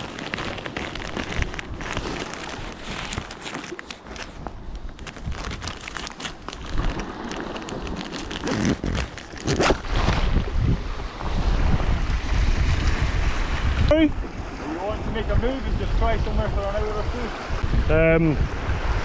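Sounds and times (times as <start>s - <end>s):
rustling in a bag: 0.0s - 10.2s
wind buffeting microphone: 4.4s - 19.0s
surf: 9.6s - 19.0s.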